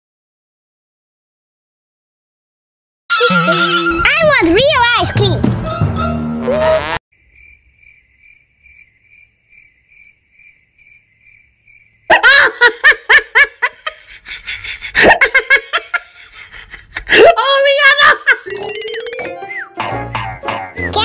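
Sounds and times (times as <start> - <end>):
crickets chirping: 7.1 - 12.1
bursts of laughter: 12.1 - 17.4.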